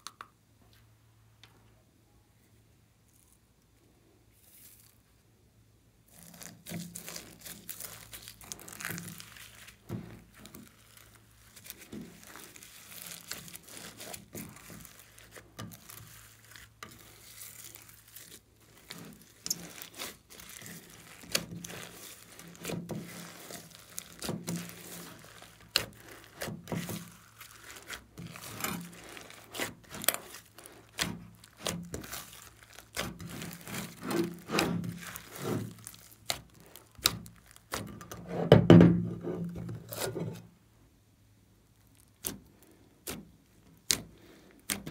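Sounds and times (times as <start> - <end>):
slime squishing: 6.0 - 38.4, 41.6 - 44.9
slime clicking and crackling: 6.1 - 38.2, 41.7 - 44.9.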